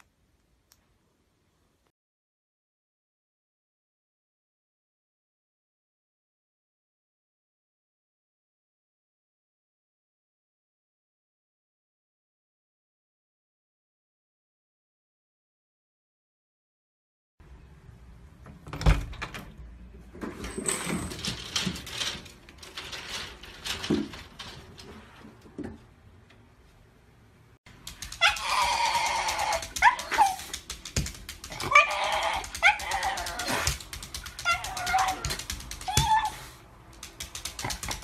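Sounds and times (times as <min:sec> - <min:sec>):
knocks and rattles: 0:20.2 - 0:25.9, 0:27.7 - 0:36.1
dog whining and yelping: 0:28.0 - 0:30.6, 0:31.5 - 0:36.6.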